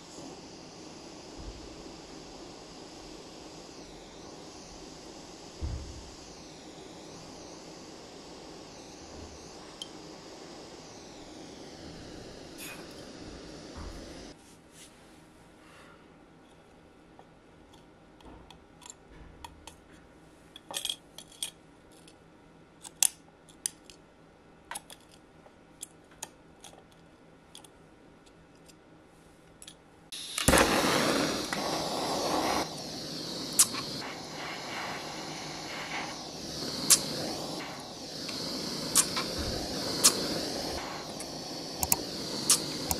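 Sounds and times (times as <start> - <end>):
loud steady rushing hiss: 0.0 - 14.4, 30.1 - 42.9.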